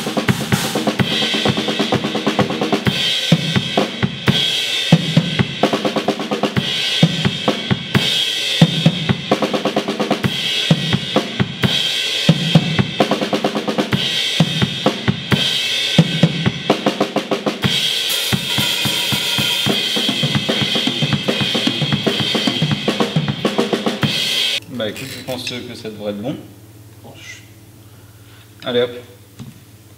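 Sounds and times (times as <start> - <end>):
snare drum: 0.0 - 24.6
cymbals ringing: 13.9 - 25.9
bass drum: 17.6 - 24.6.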